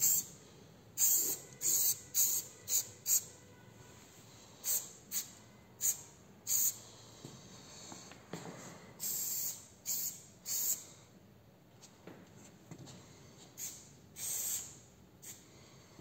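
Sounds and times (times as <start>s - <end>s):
spray can hissing: 1.0s - 3.2s, 9.0s - 10.8s, 13.6s - 14.8s.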